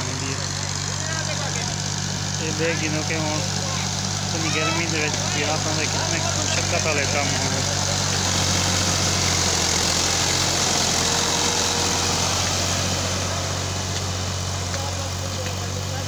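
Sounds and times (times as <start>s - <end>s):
tractor diesel engine: 0.0s - 16.0s.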